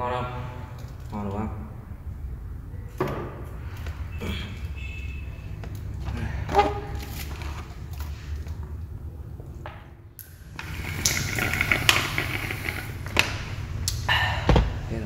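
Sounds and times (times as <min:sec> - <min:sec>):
cafe room hum: 0:00.0 - 0:15.0.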